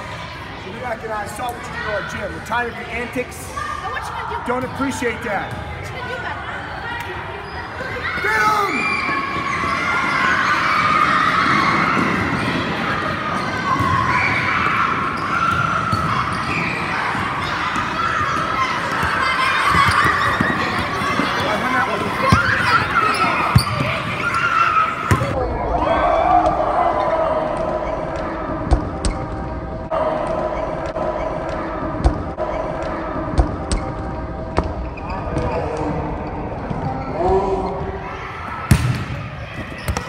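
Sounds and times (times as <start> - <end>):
steady background din: 0.0 - 40.0
children shouting and squealing: 6.3 - 28.5.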